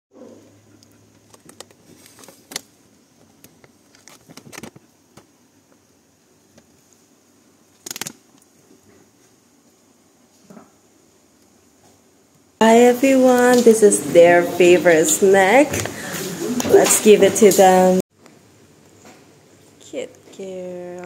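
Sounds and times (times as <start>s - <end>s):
plastic pouch crinkling: 7.7s - 8.4s.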